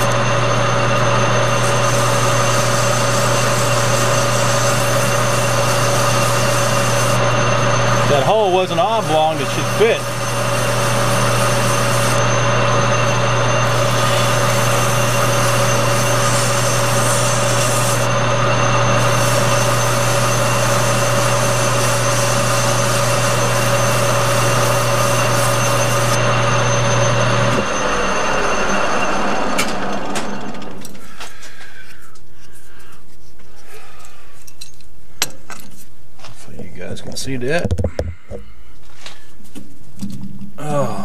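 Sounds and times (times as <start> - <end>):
metal lathe running: 0.0 - 30.8
lathe spindle coasting down: 0.0 - 31.0.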